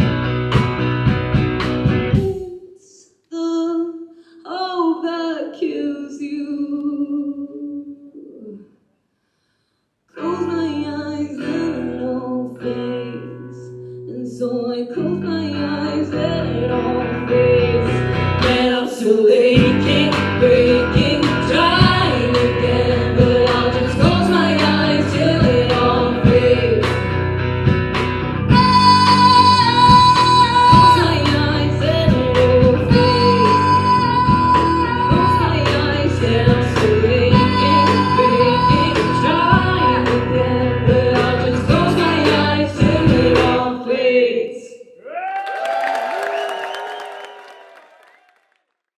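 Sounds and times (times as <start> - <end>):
electric bass: 0.0 - 2.3, 15.0 - 18.7, 19.6 - 43.7
semi-acoustic guitar: 0.0 - 2.4, 10.2 - 18.8, 19.5 - 43.6
drums: 0.0 - 2.6, 17.8 - 18.8, 19.4 - 43.8
female lead vocals: 2.1 - 8.6, 10.2 - 27.2, 28.5 - 44.8.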